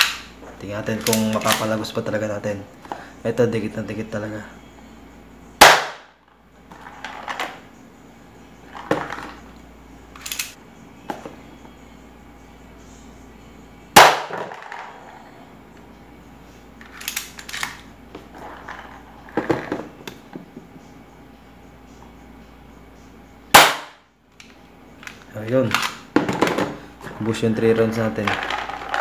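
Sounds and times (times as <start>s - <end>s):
pistol handling clicks and knocks: 0.0s - 0.3s, 10.2s - 10.6s, 16.9s - 17.8s
airsoft pistol shot crack: 5.6s - 6.1s, 14.0s - 14.5s, 23.5s - 24.0s.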